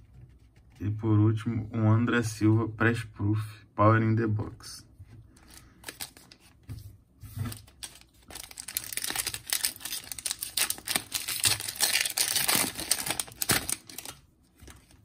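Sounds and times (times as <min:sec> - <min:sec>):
foil wrapper crinkling and tearing: 0:07.5 - 0:15.0.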